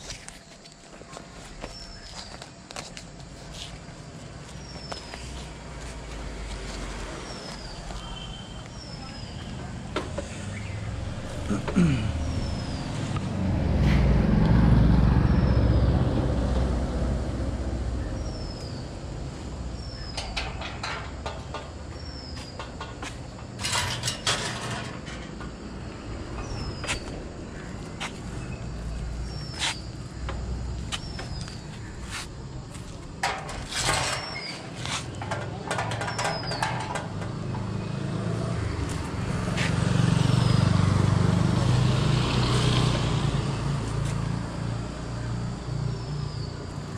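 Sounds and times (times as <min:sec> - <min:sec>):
vehicle engine rumble: 0:00.0 - 0:46.9
motorcycle engine passing: 0:10.2 - 0:17.8, 0:36.3 - 0:44.8.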